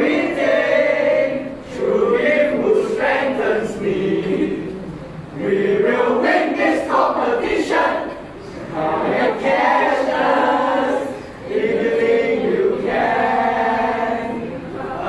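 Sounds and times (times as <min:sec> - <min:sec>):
cheerleaders chanting in unison: 0:05.4 - 0:15.0.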